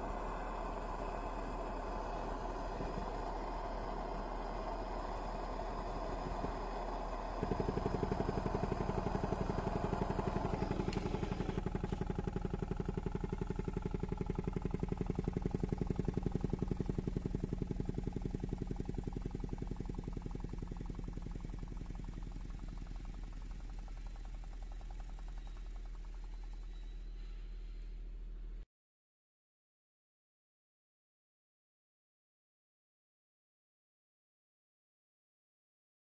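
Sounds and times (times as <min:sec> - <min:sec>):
steady hiss: 0:00.0 - 0:12.7
piston rod buzzing rattle: 0:00.0 - 0:27.4.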